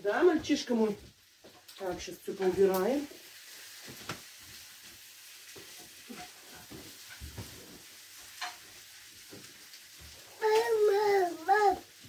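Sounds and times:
toddler vocalising: 10.3s - 11.9s.

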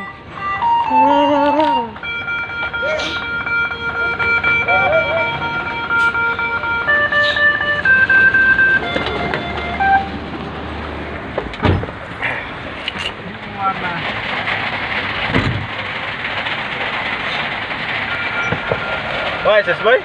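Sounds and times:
long electronic notes tune: 0.0s - 10.4s
truck engine running: 0.0s - 20.0s
low thump: 11.4s - 12.0s.

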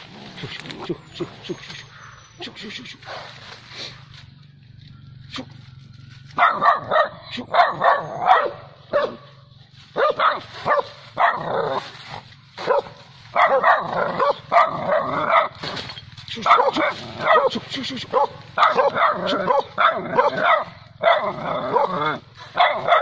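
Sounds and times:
dog barking: 6.4s - 9.4s, 10.0s - 11.8s, 12.6s - 15.6s, 16.4s - 23.0s.

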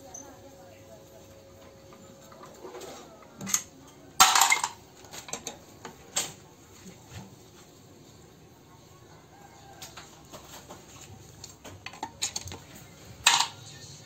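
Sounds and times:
metal tools clinking on engine block: 3.4s - 5.5s, 13.2s - 13.6s.

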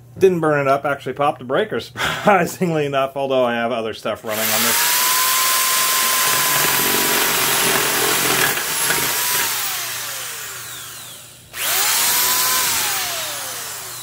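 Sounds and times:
drill boring into wood: 4.3s - 14.0s
drill motor whine: 4.3s - 14.0s.

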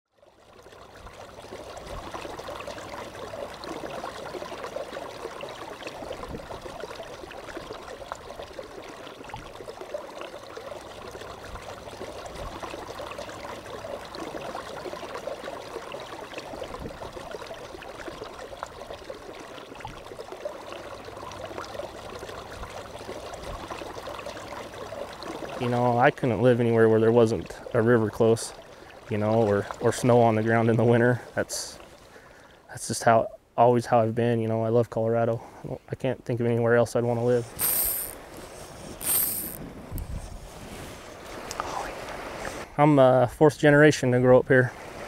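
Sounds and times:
river water flowing: 0.2s - 30.5s, 31.2s - 32.7s, 37.4s - 39.6s, 40.7s - 42.8s, 44.7s - 45.0s.

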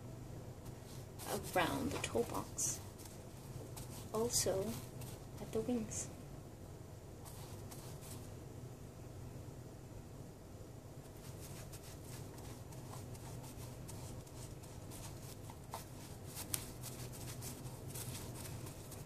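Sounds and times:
stiff brush scratching strokes: 0.6s - 6.0s, 7.2s - 8.4s, 11.0s - 19.0s.

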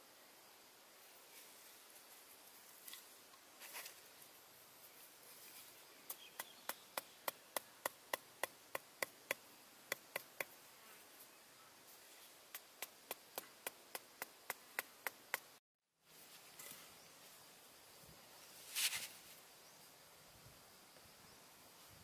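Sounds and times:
hatchet knocking wooden stakes: 6.1s - 10.6s, 12.5s - 15.5s.

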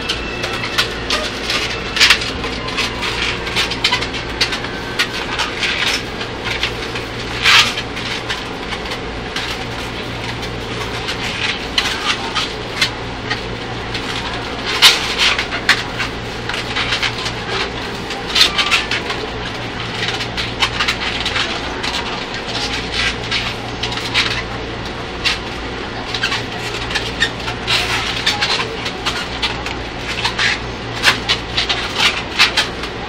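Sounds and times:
balloons squeaking: 0.0s - 24.4s
train carriage hum: 0.0s - 33.0s.

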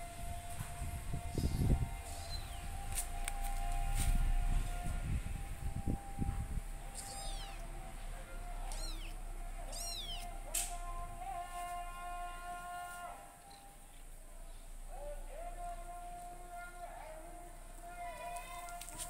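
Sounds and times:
kitten mewing: 6.9s - 7.7s, 8.6s - 10.4s.

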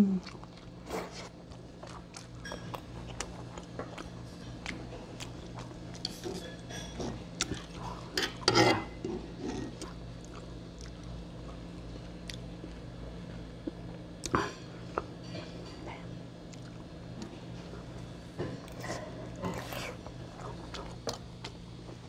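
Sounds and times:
steady low hum: 0.0s - 22.0s
cutlery scraping on a dish: 8.1s - 9.6s.

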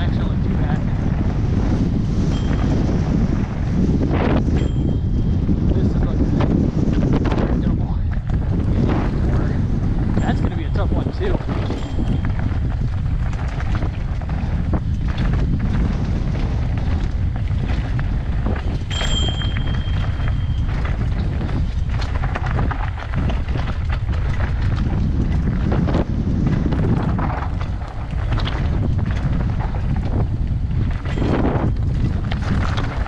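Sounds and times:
bike rattling: 0.0s - 33.0s
wind rush on microphone: 0.0s - 33.0s
tyres crunching over rock: 8.1s - 33.0s.

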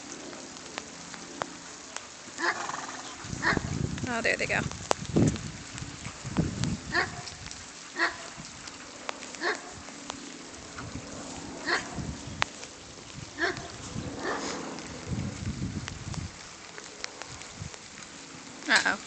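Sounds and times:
dog barking: 6.9s - 7.3s, 8.0s - 8.3s, 9.4s - 9.8s, 11.6s - 12.0s, 13.4s - 14.6s.

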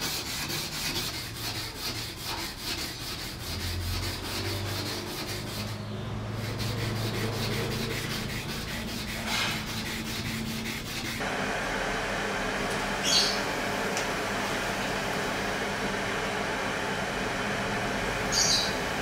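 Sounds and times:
sandpaper scratching on knife blade: 0.0s - 11.2s.

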